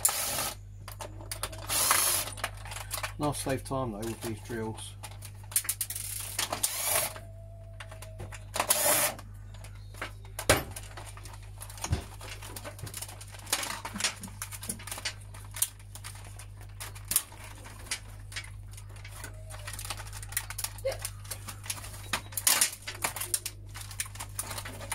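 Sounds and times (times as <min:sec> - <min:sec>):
cordless drill running: 0:00.0 - 0:00.6, 0:01.7 - 0:02.3, 0:06.6 - 0:07.2, 0:08.7 - 0:09.2.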